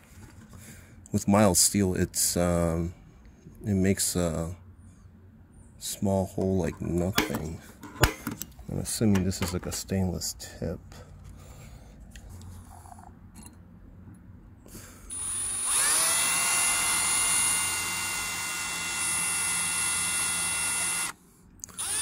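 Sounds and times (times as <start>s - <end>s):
electric drill boring into steel: 15.1s - 22.0s.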